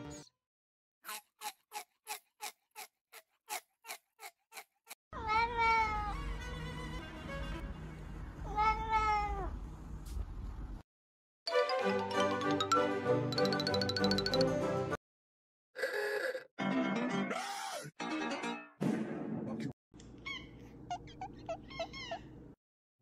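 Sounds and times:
cat meowing: 8.5 - 9.5.

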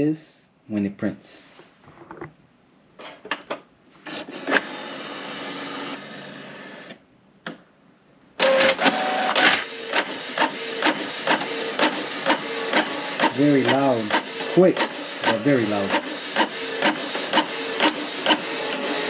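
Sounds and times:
printer motor whir: 4.1 - 7.0, 8.4 - 19.0
print head carriage clacking: 10.0 - 18.6.

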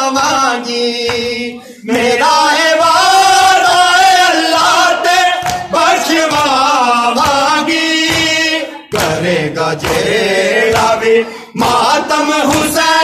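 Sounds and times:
man singing a lament: 0.0 - 13.0.

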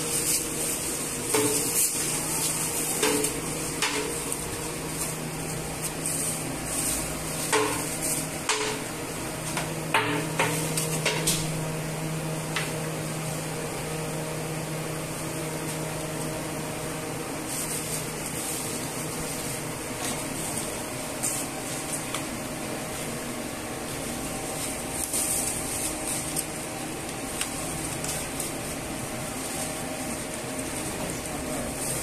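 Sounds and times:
steady mechanical hum: 0.0 - 32.0
pots and utensils knocking: 3.0 - 4.2, 7.5 - 8.9, 9.9 - 11.4.

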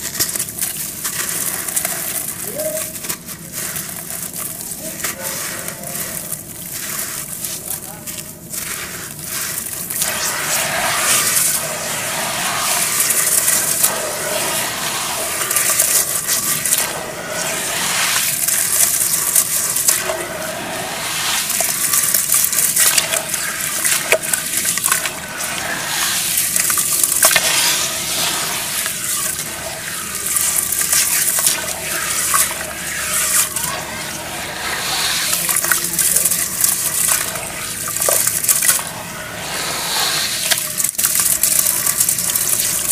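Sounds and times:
hands squelching wet mud: 0.0 - 20.3, 21.0 - 39.0
crumbs dropping into water: 21.4 - 25.2, 26.2 - 27.5, 30.1 - 33.6, 35.3 - 39.0, 40.4 - 42.9.

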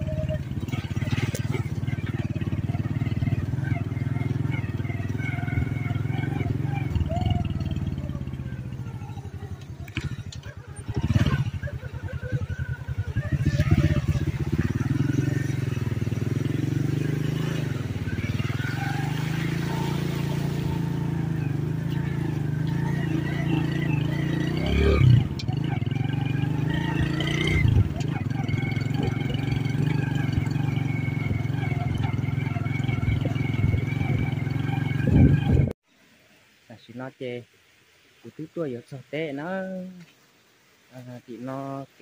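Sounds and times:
motorcycle engine running: 0.0 - 35.8.

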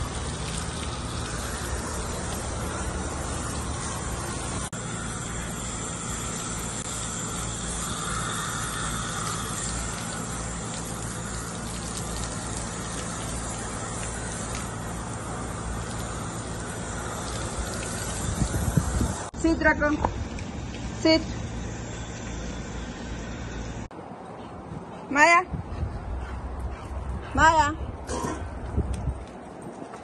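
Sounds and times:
hose spraying water on concrete: 0.0 - 23.7.

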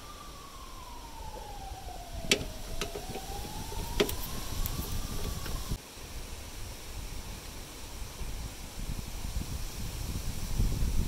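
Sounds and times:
siren wailing: 0.0 - 5.8.

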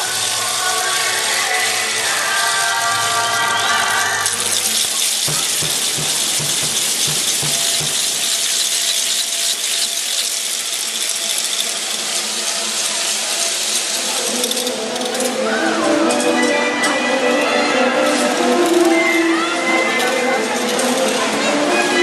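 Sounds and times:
rhythmic low thumps: 5.3 - 8.6.

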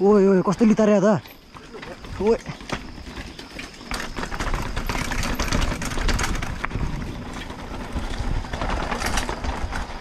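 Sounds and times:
bike clattering and rattling: 0.1 - 10.0.

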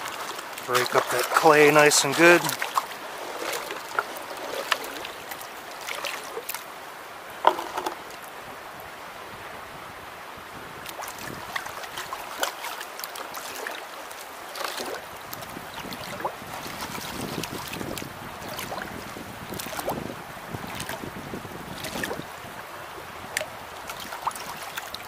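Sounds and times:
water sloshing in a pan: 0.0 - 6.6, 10.8 - 20.0
stream rushing: 0.0 - 25.0.

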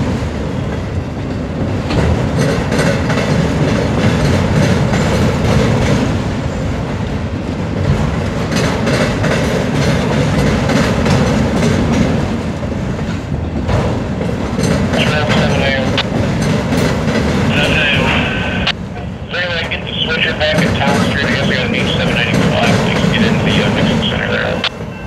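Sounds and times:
train rumble: 0.0 - 25.0
wheels clicking over rail joints: 7.5 - 17.5.

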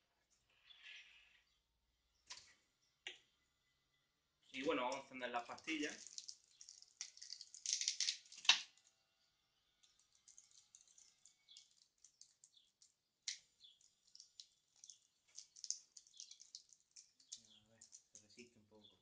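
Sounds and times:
wrapper crinkling and tearing: 5.5 - 8.9, 13.3 - 18.3.

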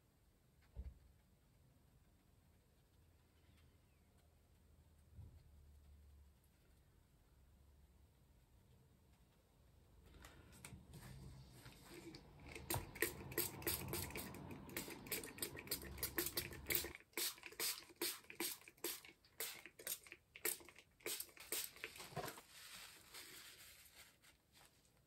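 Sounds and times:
taps clicks and rustles of pages: 10.0 - 22.7.

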